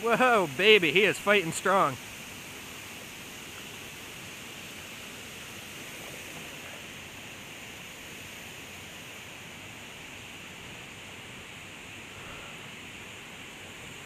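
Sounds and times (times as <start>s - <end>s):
creek water over rocks: 0.0s - 14.0s.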